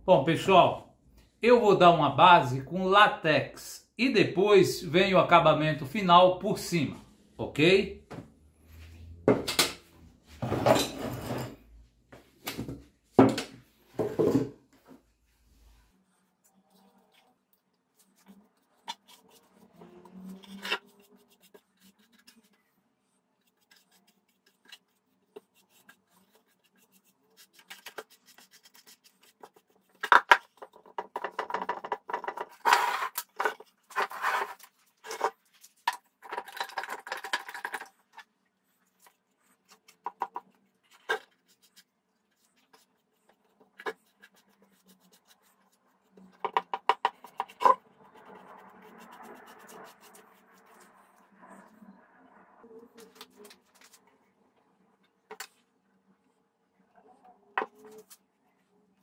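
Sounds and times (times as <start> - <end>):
paintbrush scratching on wood: 15.5 - 35.8, 38.7 - 51.8.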